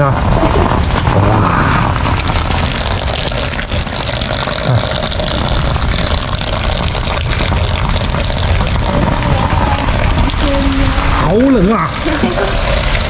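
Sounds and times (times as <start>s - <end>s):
hail pattering: 0.0s - 13.0s
wind buffeting microphone: 5.2s - 13.0s.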